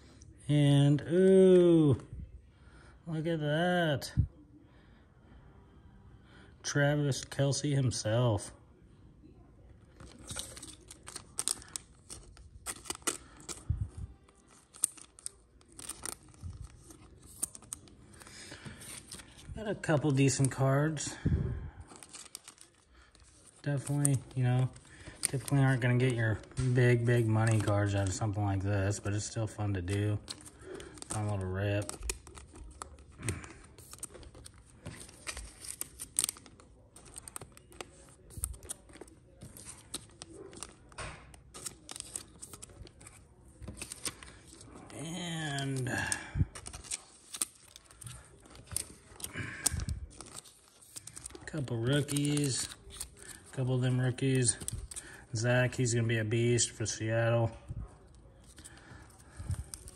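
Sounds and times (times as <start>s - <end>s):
foil wrappers crinkling: 9.9s - 21.2s, 21.8s - 57.1s, 57.8s - 59.9s
cards clicking and rustling: 10.0s - 20.7s, 21.9s - 57.0s, 58.0s - 59.9s.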